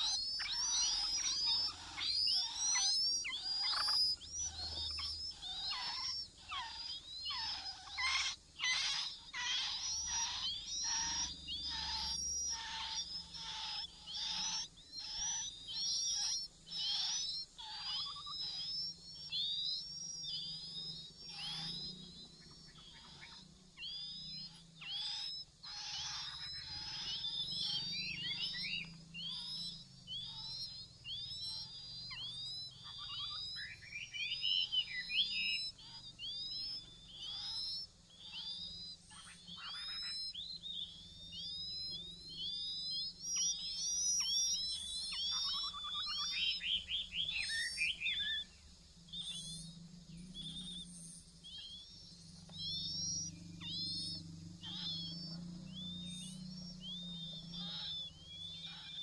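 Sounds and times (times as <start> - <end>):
nestlings chirping: 0.0 - 59.0.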